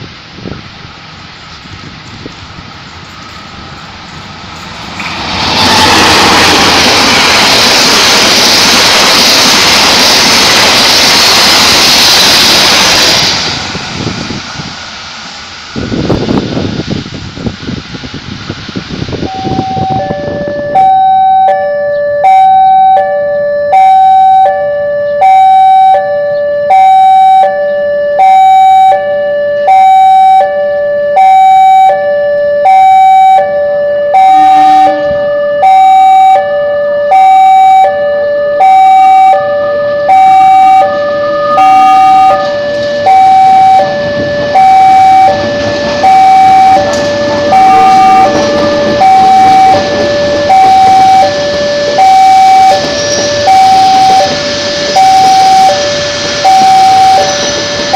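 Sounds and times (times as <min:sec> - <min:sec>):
approaching train: 0:00.0 - 0:57.9
two-tone crossing alarm chime: 0:19.3 - 0:57.9.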